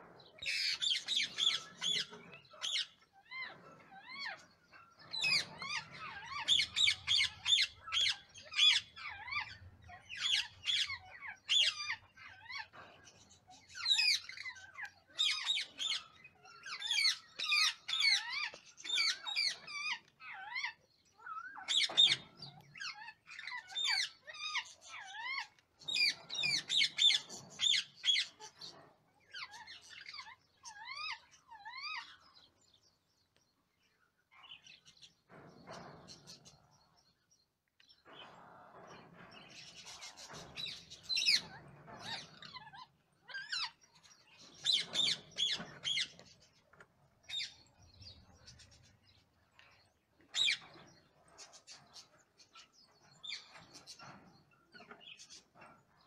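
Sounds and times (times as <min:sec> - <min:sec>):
parakeets squeaky begging calls: 0:00.4 - 0:12.8, 0:13.5 - 0:32.3, 0:39.6 - 0:46.4.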